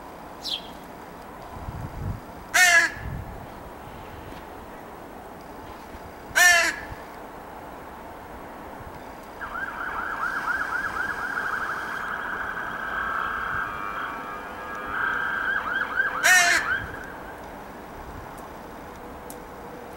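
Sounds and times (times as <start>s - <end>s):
crow cawing: 2.6s - 3.0s, 6.4s - 6.9s, 16.1s - 17.0s
rapidly wavering whine: 9.4s - 18.8s.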